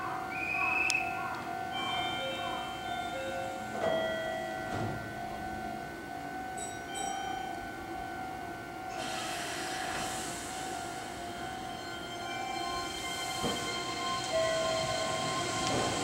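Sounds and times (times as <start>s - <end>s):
electric train humming: 0.0s - 16.0s
hiss: 9.0s - 11.2s.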